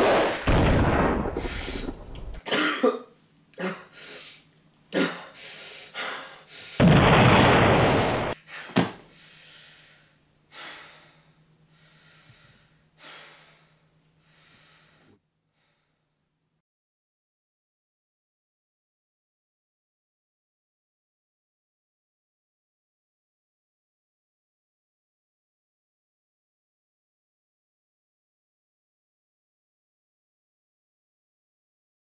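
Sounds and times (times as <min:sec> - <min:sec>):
faint steady hum: 0:01.4 - 0:16.6
man coughing and gasping: 0:02.4 - 0:04.0, 0:04.9 - 0:05.4.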